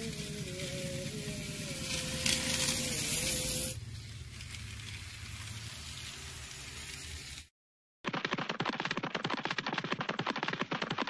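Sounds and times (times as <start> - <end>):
train hiss on track: 0.0 - 4.5
low hum: 0.0 - 7.0
toy train motor whining: 0.0 - 7.5.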